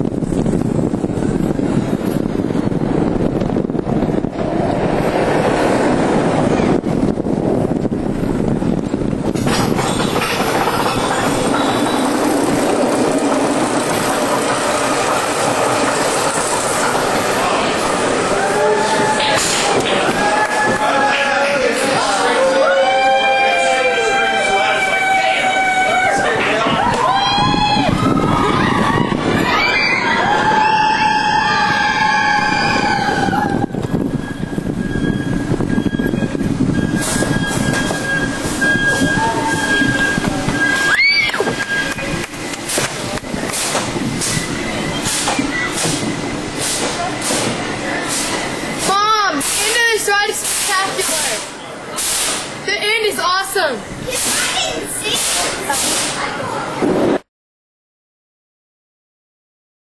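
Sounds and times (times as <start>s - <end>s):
roller coaster cars rumbling on track: 0.0s - 57.3s.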